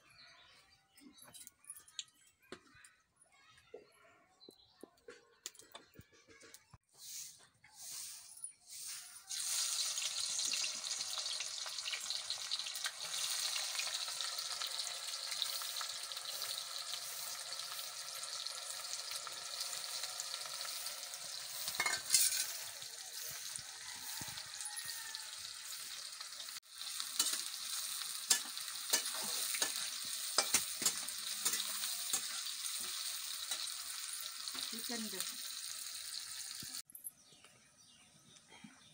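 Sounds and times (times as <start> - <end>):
onions sizzling in hot oil: 8.7 - 36.8
spatula scraping pan: 20.6 - 25.0, 26.9 - 34.7.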